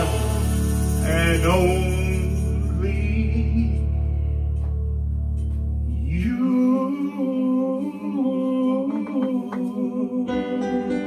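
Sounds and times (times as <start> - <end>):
man singing love song: 0.0 - 4.1, 5.9 - 11.0
deep sustained chord: 0.0 - 7.4
backing track: 0.0 - 11.0.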